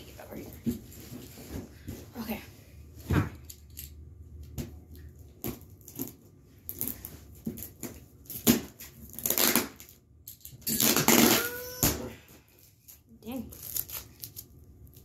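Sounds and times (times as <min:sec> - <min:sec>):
cardboard and tape tearing: 0:05.8 - 0:10.0, 0:10.6 - 0:12.2, 0:12.8 - 0:15.0.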